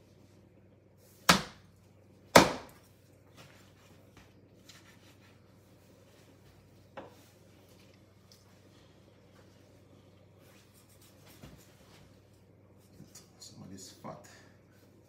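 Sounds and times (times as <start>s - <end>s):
knife chopping onto cutting board: 1.2s - 1.6s, 2.3s - 2.8s.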